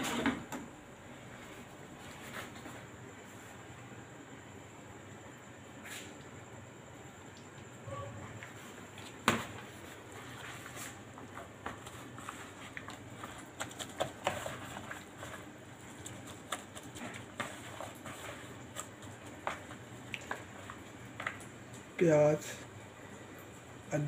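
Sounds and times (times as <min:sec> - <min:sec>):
hand mixing food in metal bowl: 0:09.0 - 0:22.7.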